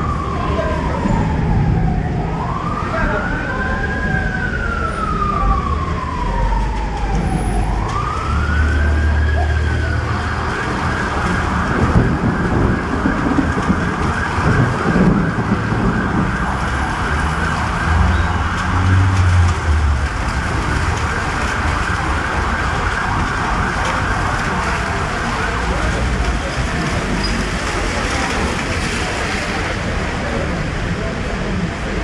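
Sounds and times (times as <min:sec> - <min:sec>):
emergency vehicle siren wailing: 0:00.0 - 0:29.9
street noise: 0:00.0 - 0:32.0
low rumbles: 0:09.8 - 0:30.4.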